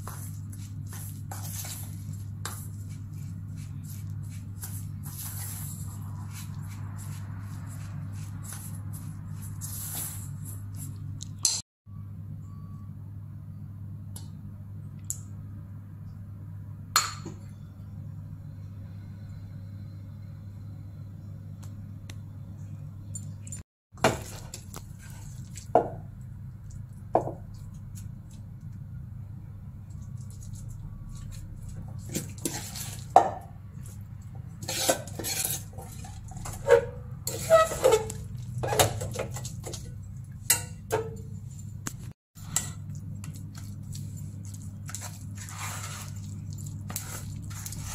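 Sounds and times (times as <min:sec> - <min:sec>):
steady low hum: 0:00.0 - 0:37.3
spoon scraping metal pan: 0:34.6 - 0:39.6.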